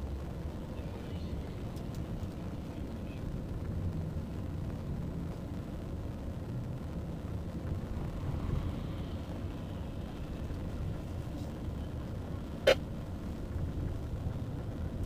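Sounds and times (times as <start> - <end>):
cars and scooters passing: 7.6 - 12.9.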